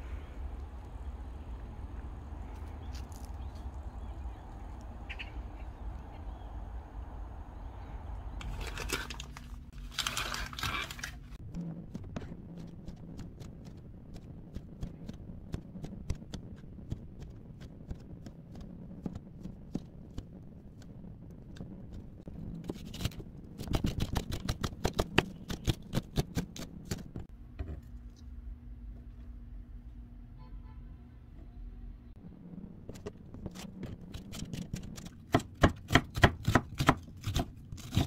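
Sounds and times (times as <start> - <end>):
plastic packaging crinkling: 8.4 - 11.4
knife chopping on plastic board: 33.5 - 38.0.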